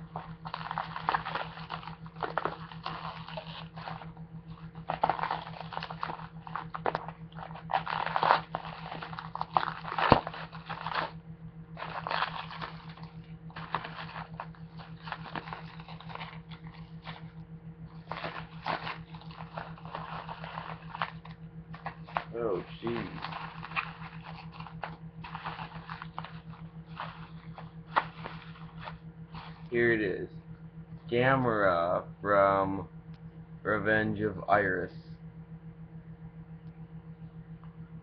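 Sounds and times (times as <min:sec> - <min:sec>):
packing material rustling: 0:00.0 - 0:29.9
steady low hum: 0:00.0 - 0:38.0.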